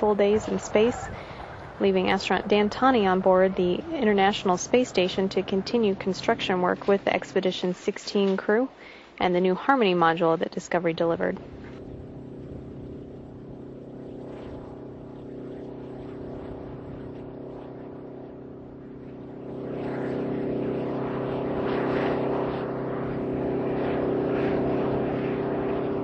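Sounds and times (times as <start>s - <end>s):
truck engine droning: 0.0s - 7.7s.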